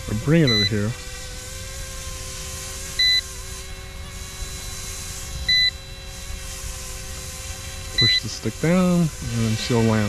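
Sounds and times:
model helicopter motor whine: 0.0s - 10.0s
high electronic beeps: 3.0s - 3.3s, 5.5s - 5.9s, 8.0s - 8.3s.

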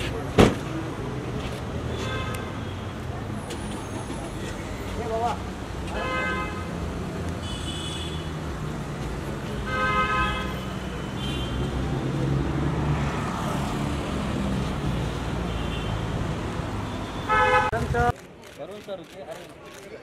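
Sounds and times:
car horns honking: 16.9s - 17.8s.

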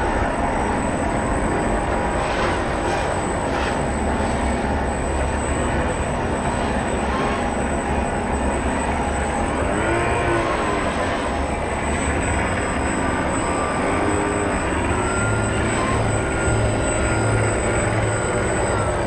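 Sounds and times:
model boat motor whine: 0.0s - 19.0s.

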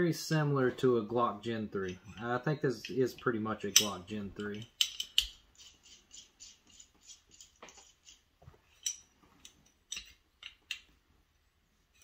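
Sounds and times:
pistol parts clicking: 3.7s - 8.2s, 8.8s - 10.9s.

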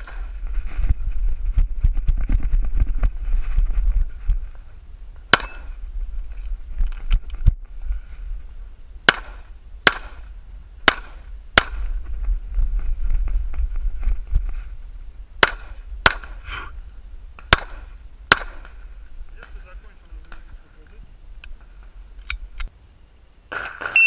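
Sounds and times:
pistol shots: 9.1s - 11.9s, 15.4s - 16.4s, 17.5s - 18.7s.

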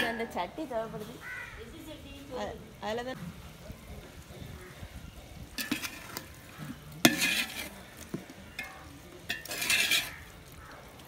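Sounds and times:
metal ladle clinking on pot: 5.5s - 10.3s.

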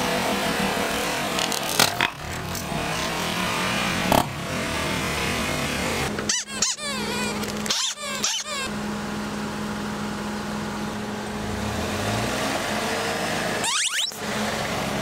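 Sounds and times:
car engine running: 0.0s - 15.0s
rubber squeaky toy squeaks: 6.3s - 8.7s, 13.6s - 14.2s.

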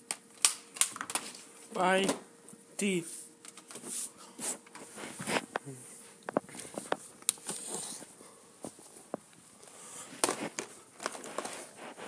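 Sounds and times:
plastic rustling: 10.0s - 12.0s.

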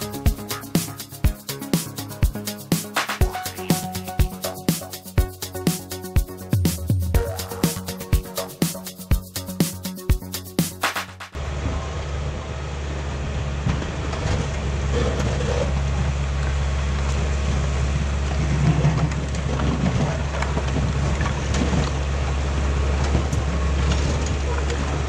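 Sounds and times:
bulldozer diesel engine running: 11.3s - 25.0s.

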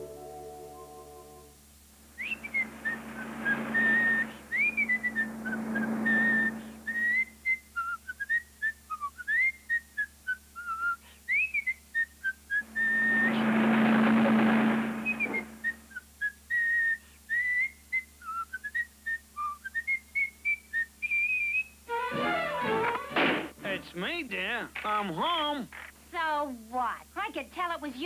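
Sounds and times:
car driving past: 2.1s - 7.3s, 12.6s - 15.8s
person whistling a tune: 2.2s - 13.3s.

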